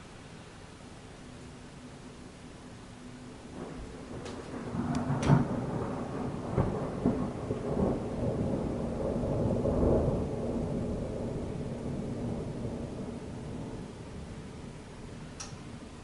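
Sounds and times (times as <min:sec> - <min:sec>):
thunder crackling and rumbling: 0:03.5 - 0:16.0.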